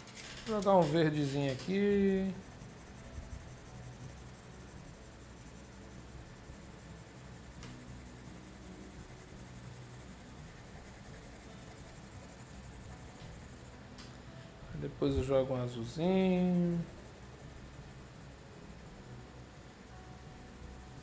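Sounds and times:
pencil scratching on paper: 0.8 - 13.6.

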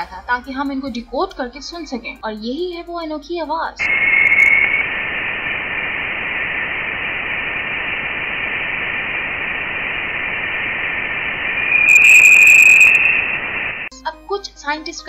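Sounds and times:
faint whistling tone: 3.8 - 13.9
steady hiss: 3.8 - 13.9.

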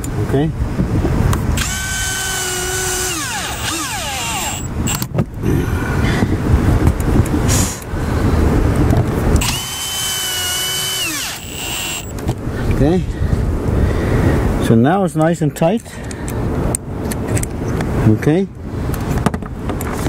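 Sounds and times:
cordless drill whining: 1.6 - 5.1, 9.4 - 12.2.

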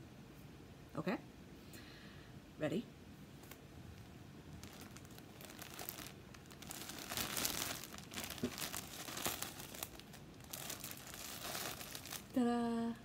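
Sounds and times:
plastic packaging crinkling: 3.4 - 12.4.

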